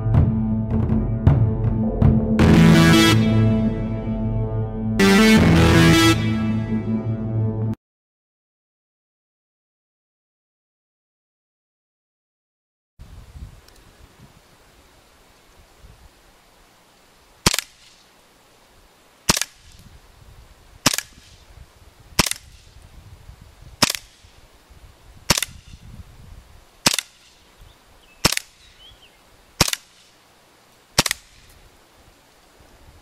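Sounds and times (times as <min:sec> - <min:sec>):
airsoft pistol shots: 0:17.4 - 0:17.9, 0:19.3 - 0:19.8, 0:20.8 - 0:21.4, 0:22.2 - 0:22.7, 0:23.8 - 0:24.3, 0:25.3 - 0:25.8, 0:26.8 - 0:27.4, 0:28.2 - 0:28.6, 0:29.6 - 0:30.0, 0:31.0 - 0:31.5.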